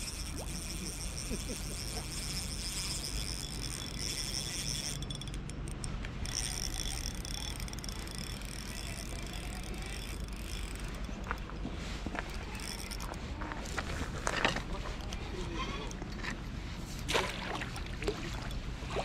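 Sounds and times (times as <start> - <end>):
spinning reel whirring: 0.0 - 15.2.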